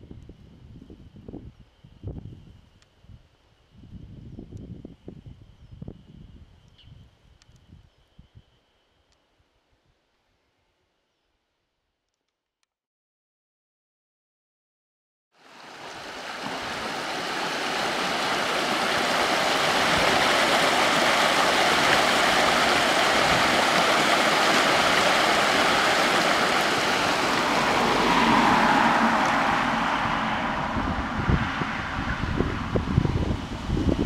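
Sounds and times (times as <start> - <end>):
stream rushing over rocks: 15.4 - 32.4.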